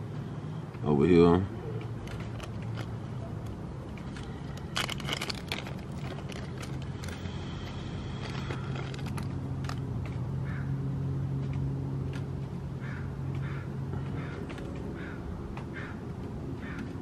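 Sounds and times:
steady low hum: 0.0s - 17.0s
small metal parts clicking: 2.0s - 7.2s.

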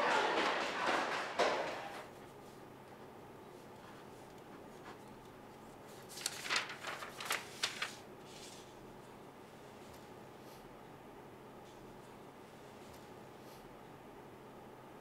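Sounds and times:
papers rustling: 5.9s - 8.7s.

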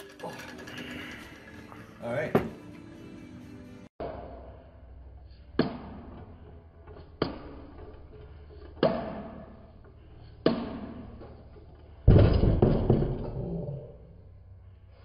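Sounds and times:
heavy thud: 12.1s - 13.4s.

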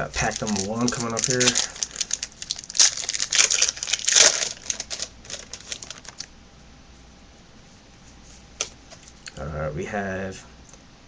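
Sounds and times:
wrapper tearing and crinkling: 0.0s - 6.3s.

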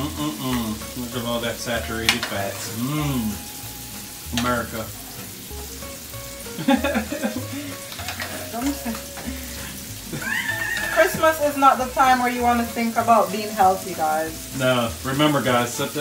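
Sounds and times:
meat sizzling in a pan: 0.0s - 16.0s
spoon stirring and basting: 7.4s - 11.3s.

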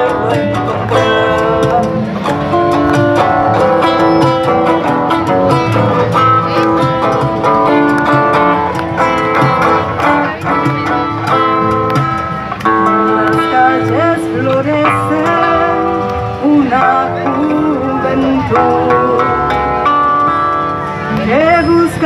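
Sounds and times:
drum beating: 0.0s - 17.2s
acoustic guitar strumming: 0.0s - 22.0s.

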